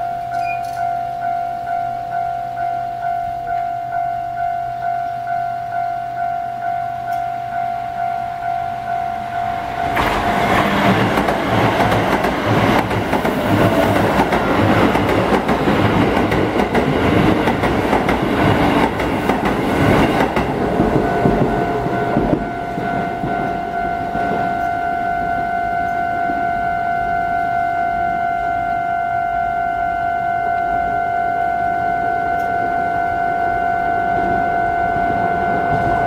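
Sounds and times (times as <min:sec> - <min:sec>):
level crossing bell ringing: 0:00.0 - 0:09.9, 0:20.8 - 0:36.0
train wheels clattering: 0:09.8 - 0:24.8.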